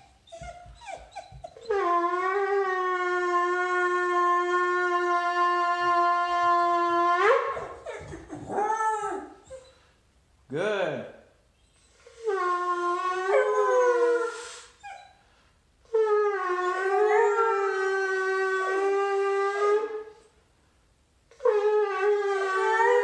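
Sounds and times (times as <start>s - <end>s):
puppy howling: 0.3s - 9.6s, 12.4s - 15.0s, 16.0s - 20.1s, 21.4s - 23.0s.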